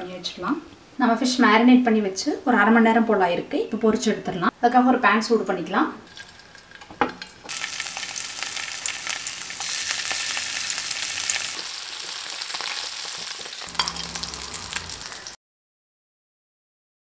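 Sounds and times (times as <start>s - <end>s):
fish sizzling in hot oil: 6.1s - 15.4s.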